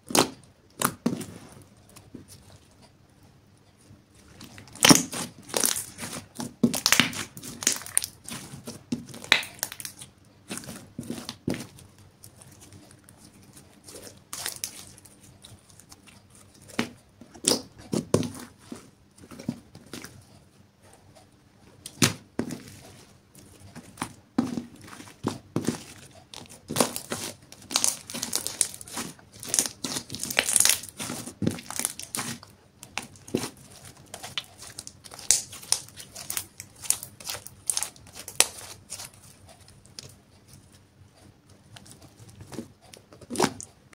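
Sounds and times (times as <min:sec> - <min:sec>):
slime wet pops and crackles: 0:04.4 - 0:08.2, 0:09.0 - 0:10.6, 0:34.2 - 0:39.1.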